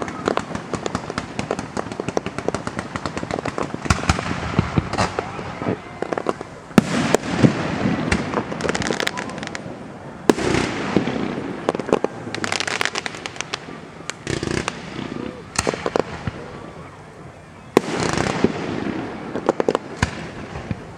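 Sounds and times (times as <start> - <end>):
firework bangs with rumble: 0.0 - 9.6
fireworks crackling: 0.0 - 20.9.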